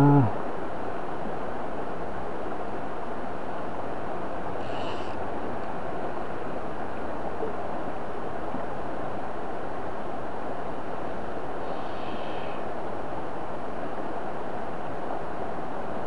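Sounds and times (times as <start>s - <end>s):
faint high call: 0.0s - 0.4s
stream rushing over riffles: 0.0s - 16.0s.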